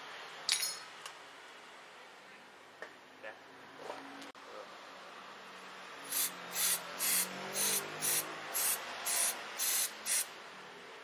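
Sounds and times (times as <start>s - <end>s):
aerosol spray hissing bursts: 6.1s - 10.3s.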